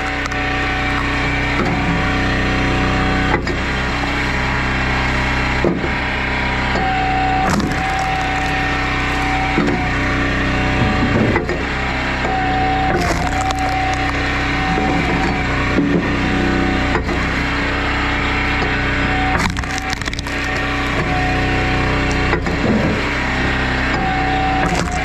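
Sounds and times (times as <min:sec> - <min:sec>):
wood cracking as it splits: 0:00.0 - 0:01.8, 0:07.3 - 0:10.2, 0:12.8 - 0:15.3, 0:19.2 - 0:21.3, 0:24.6 - 0:25.0
engine running: 0:00.0 - 0:25.0.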